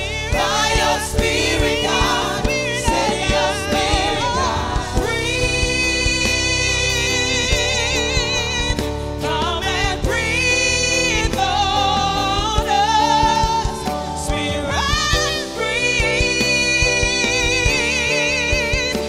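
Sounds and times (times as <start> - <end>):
keyboard and band accompaniment: 0.0 - 19.0
women singing gospel song: 0.0 - 19.0.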